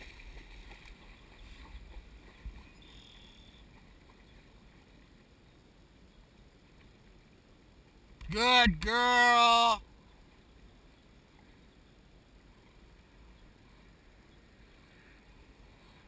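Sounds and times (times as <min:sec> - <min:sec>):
wind rumble on microphone: 0:00.0 - 0:02.9
dog swimming splashing water: 0:00.0 - 0:05.0.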